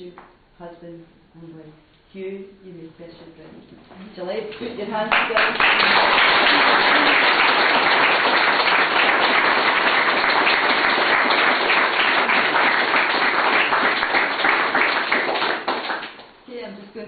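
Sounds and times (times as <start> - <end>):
crowd applauding: 5.1 - 16.4.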